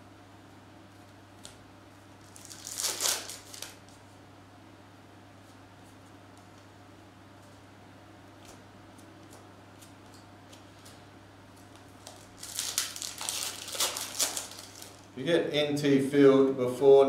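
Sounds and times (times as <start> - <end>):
trading cards shuffling: 8.4 - 15.1.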